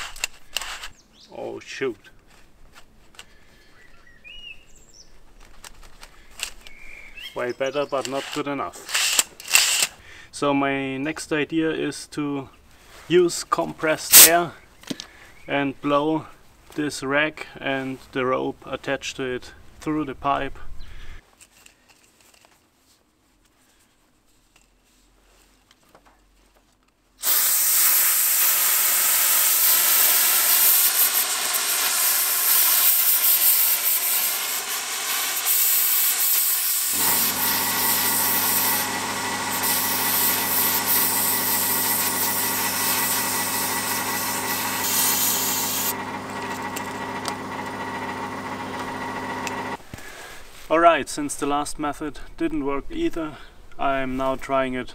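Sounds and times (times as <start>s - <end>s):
compressed air hissing: 14.1s - 14.3s, 27.2s - 46.0s.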